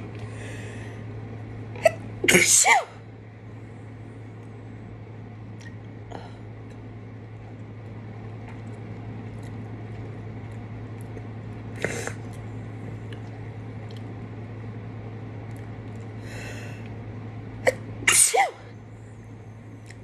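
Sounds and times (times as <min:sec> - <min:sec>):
low hum: 0:00.0 - 0:20.0
woman sneezing: 0:01.8 - 0:03.0, 0:17.7 - 0:18.7.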